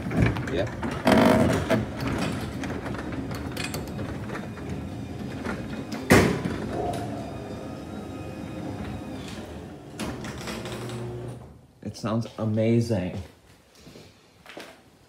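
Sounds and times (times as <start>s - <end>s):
garage door opener motor: 1.0s - 11.5s.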